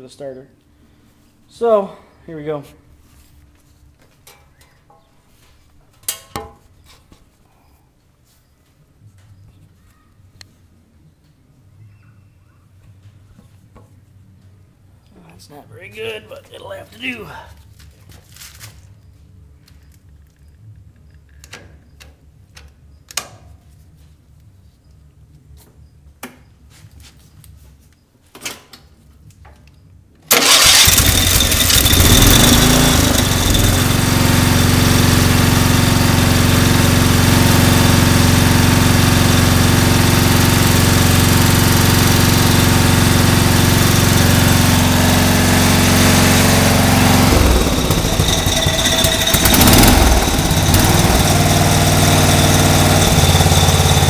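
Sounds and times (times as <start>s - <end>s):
lawn tractor engine running: 30.3s - 54.0s.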